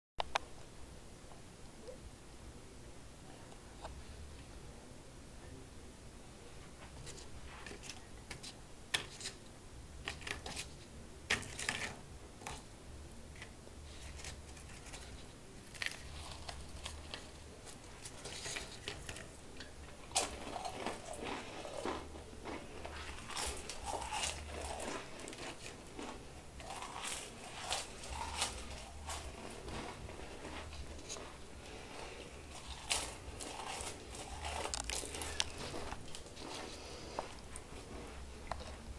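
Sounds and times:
crackers crunching: 10.0 - 12.7, 13.3 - 38.9.

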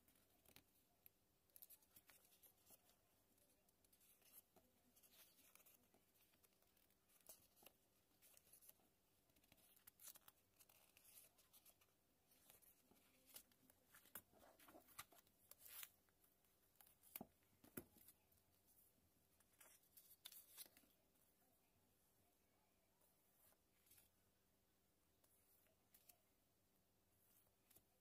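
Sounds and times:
paper pages rustling: 1.5 - 16.1, 19.4 - 20.9.

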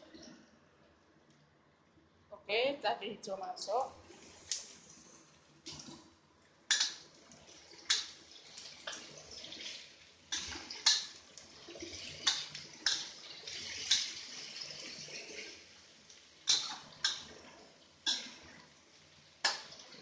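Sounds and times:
food sizzling in oil: 6.7 - 20.0
metal spatula scraping a wok: 16.5 - 16.9.

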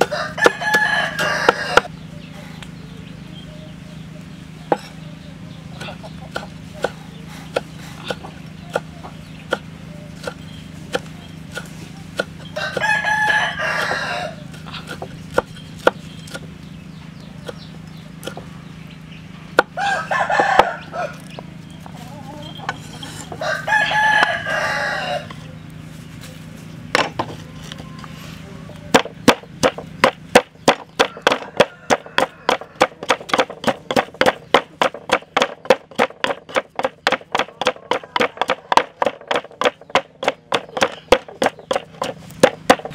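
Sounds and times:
cleaver chopping on wooden block: 0.0 - 1.9, 4.7 - 4.9, 5.8 - 8.9, 9.5 - 16.5, 17.4 - 18.5, 19.6 - 19.8, 28.9 - 42.9
pestle pounding in mortar: 0.0 - 1.9, 5.8 - 16.5, 19.5 - 19.8, 28.9 - 42.9
rooster crowing: 0.0 - 1.9, 12.5 - 14.5, 19.7 - 21.4, 22.0 - 25.4, 30.9 - 33.4, 37.5 - 39.0.

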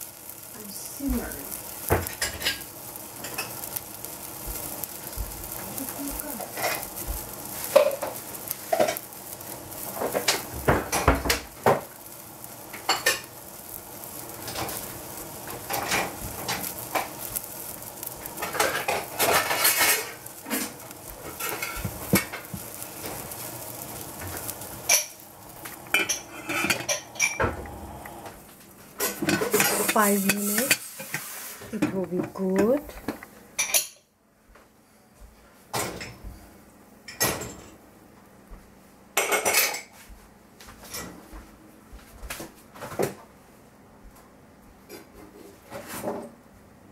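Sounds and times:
pot bubbling hiss: 0.0 - 34.0.

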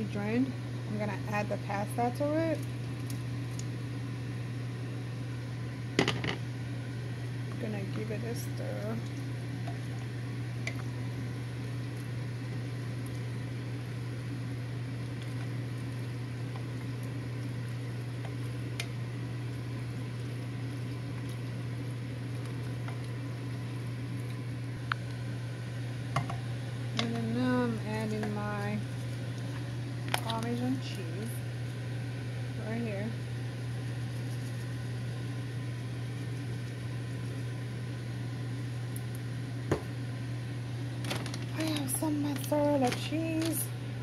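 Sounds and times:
steady low hum: 0.0 - 44.0
sauce simmering in a pot: 2.6 - 5.8, 8.4 - 26.9, 33.2 - 41.5.

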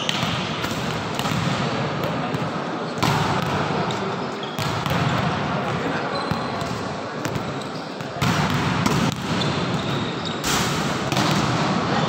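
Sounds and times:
volleyballs hit and bouncing: 0.0 - 12.0
din of voices in a hall: 0.5 - 8.8.

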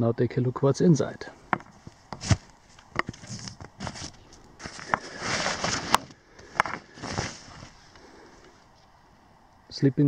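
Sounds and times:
sharp clicks and knocks: 1.5 - 2.3
heavy cloth rustling: 1.6 - 8.2.

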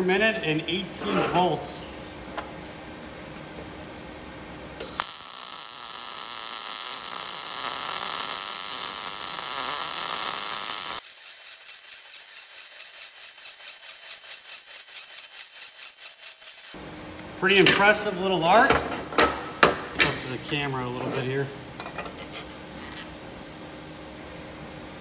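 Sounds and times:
welding arc striking click: 4.8 - 11.0
welding arc hissing: 4.8 - 16.8.

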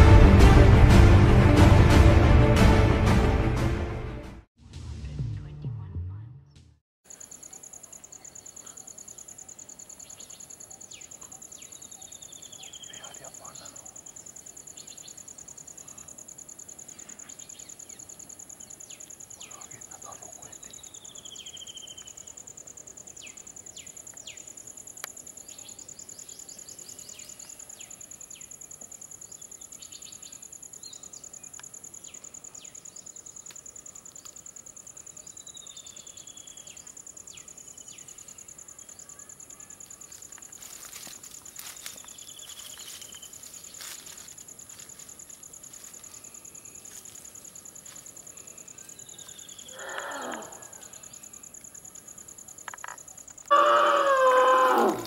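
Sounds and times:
insects shrilling: 7.1 - 55.0
low animal call: 49.7 - 51.0, 53.5 - 55.0.

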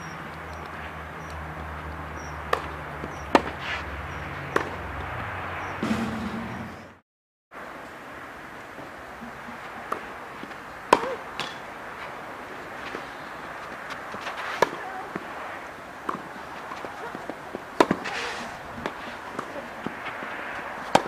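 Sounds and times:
racket hitting tennis ball: 2.2 - 7.0, 9.2 - 21.0.

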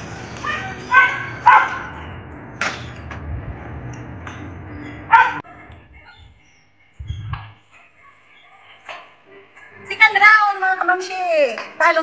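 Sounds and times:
dog barking: 0.9 - 2.0, 5.1 - 5.7, 7.7 - 9.2.

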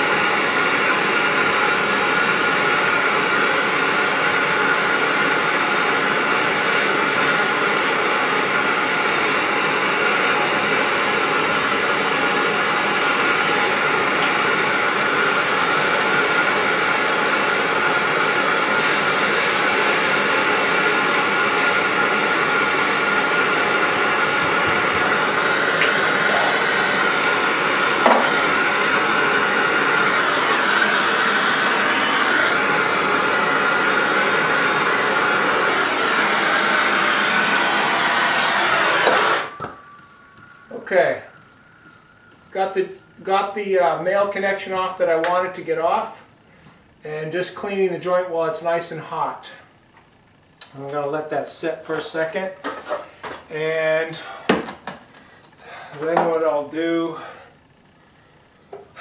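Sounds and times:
gas torch flame hissing: 0.0 - 45.1.

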